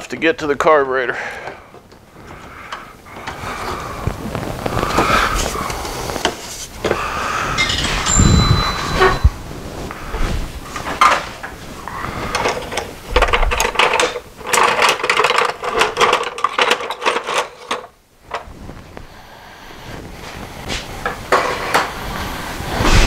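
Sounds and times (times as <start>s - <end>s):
metal tools clattering: 7.6s - 9.3s, 12.3s - 17.9s.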